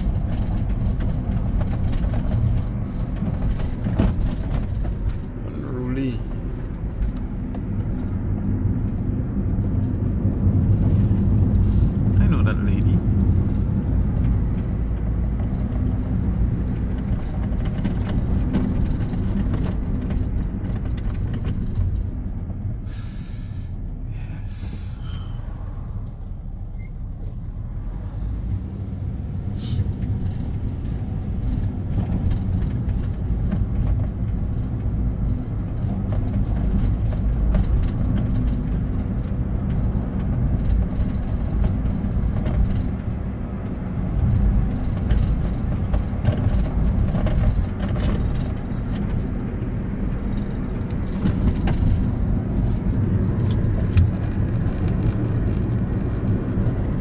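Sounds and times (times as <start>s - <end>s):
car cabin road rumble: 0.0s - 57.0s
short hisses: 22.9s - 25.4s, 29.6s - 29.9s.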